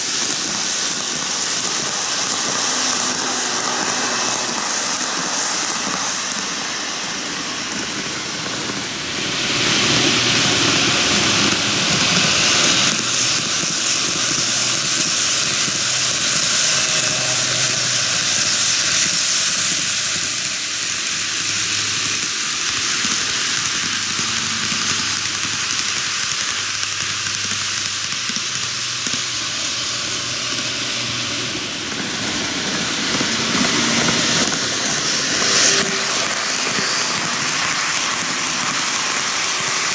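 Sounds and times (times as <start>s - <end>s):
model train wheels hissing: 0.0s - 39.9s.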